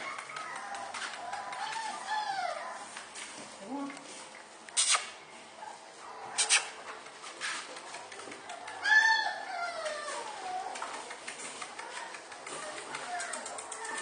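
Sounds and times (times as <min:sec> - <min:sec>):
puppy whining: 0:00.0 - 0:03.0, 0:08.4 - 0:14.0
puppies yapping: 0:00.0 - 0:03.1, 0:05.0 - 0:14.0.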